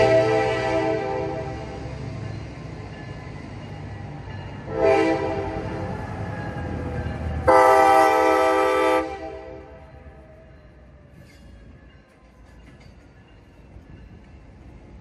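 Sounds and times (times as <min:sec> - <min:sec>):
diesel locomotive horn blasts: 0:00.0 - 0:01.7, 0:04.7 - 0:05.8, 0:07.4 - 0:10.0.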